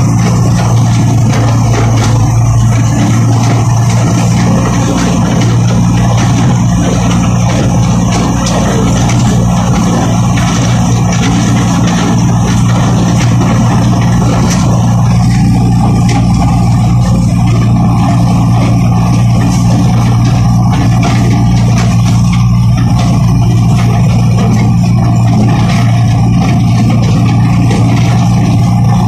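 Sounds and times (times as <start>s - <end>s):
stalk shredder chopping: 0.0s - 29.0s
tractor diesel engine running: 0.0s - 29.0s.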